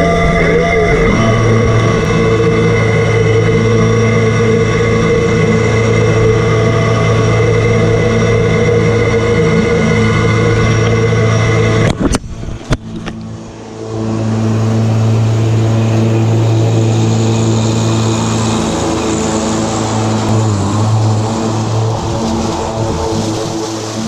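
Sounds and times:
diesel tractor engine running: 0:00.0 - 0:24.0.

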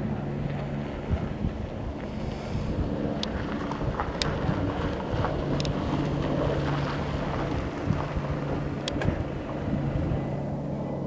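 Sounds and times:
distant helicopter drone: 0:00.0 - 0:11.0
wind buffeting microphone: 0:00.0 - 0:11.0.

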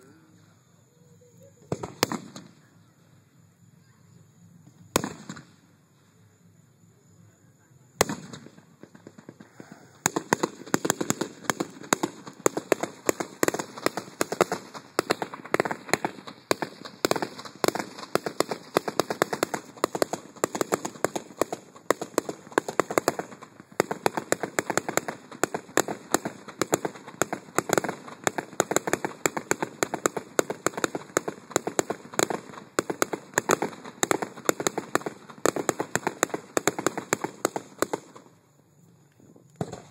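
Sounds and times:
fireworks crackling: 0:01.2 - 0:02.7, 0:04.6 - 0:06.2, 0:08.0 - 0:39.9.

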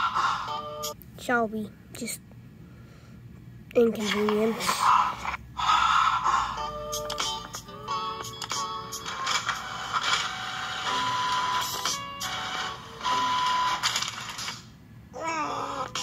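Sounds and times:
printer steady whine: 0:08.3 - 0:14.6
printer mechanism whirring: 0:08.4 - 0:14.6.

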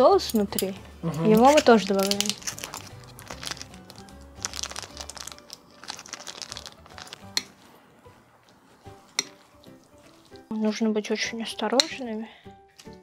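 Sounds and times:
soft background music: 0:00.0 - 0:13.0
plastic sachet crinkling: 0:01.3 - 0:07.4
metal chopsticks clicking on plate: 0:07.3 - 0:07.5, 0:09.2 - 0:09.4.

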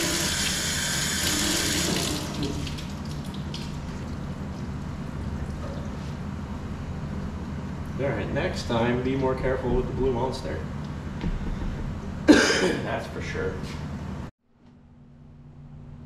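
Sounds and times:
faucet water running into sink: 0:00.0 - 0:04.2
steady low hum: 0:01.3 - 0:16.0.

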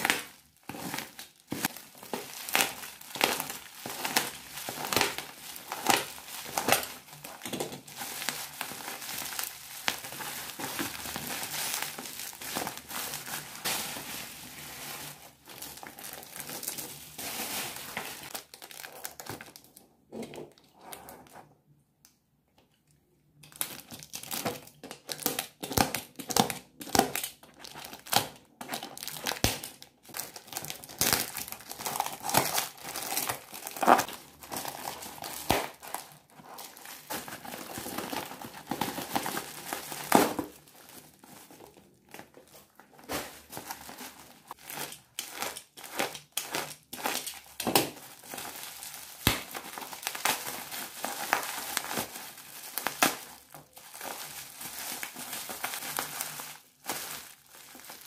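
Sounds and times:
bubble wrap crinkling: 0:00.0 - 0:19.8, 0:23.5 - 0:58.0
plastic wrap crinkling: 0:00.0 - 0:19.8, 0:23.5 - 0:58.0
cardboard tearing: 0:30.6 - 0:40.6.

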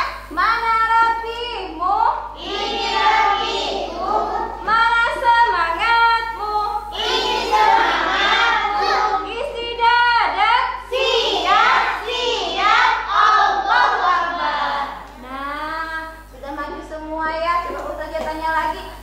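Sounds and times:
children and women singing: 0:02.4 - 0:15.5.

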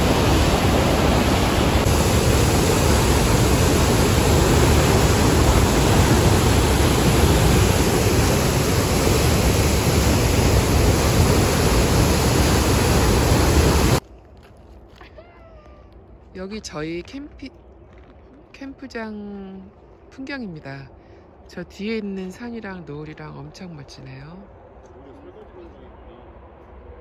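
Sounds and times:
waterfall rushing: 0:00.0 - 0:14.0.

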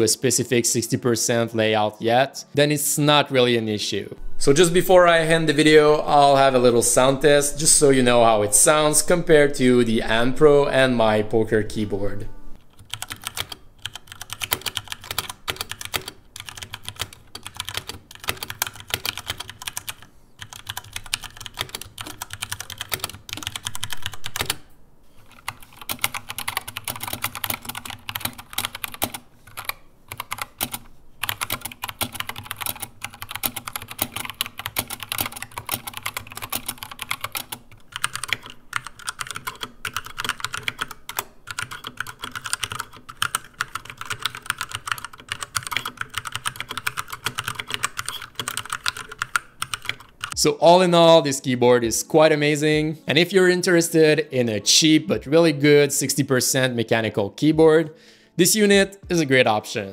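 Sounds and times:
mechanical keyboard typing: 0:12.6 - 0:50.4.

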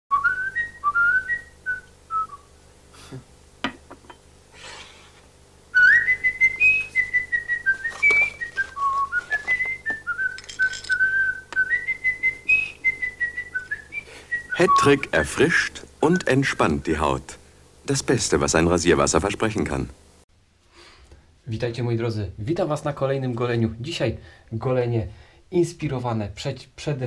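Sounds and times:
person whistling a tune: 0:00.1 - 0:02.4, 0:05.8 - 0:15.0
short rustle: 0:06.9 - 0:11.1.

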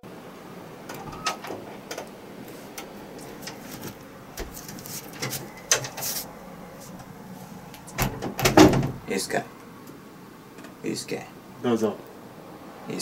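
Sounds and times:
knocks and shuffling: 0:00.9 - 0:10.8.

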